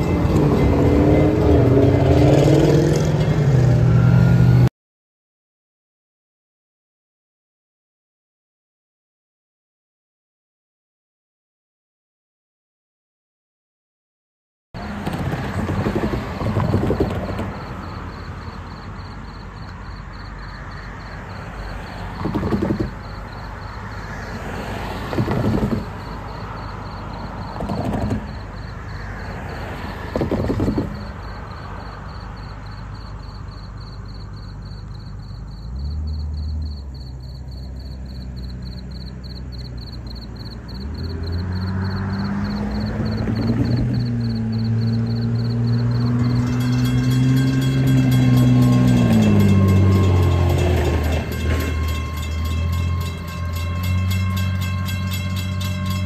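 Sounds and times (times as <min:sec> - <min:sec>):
railroad crossing bell ringing: 0:00.0 - 0:04.6, 0:44.0 - 0:56.0
car passing over crossing: 0:00.0 - 0:04.7, 0:14.8 - 0:56.0
low engine hum: 0:24.6 - 0:56.0.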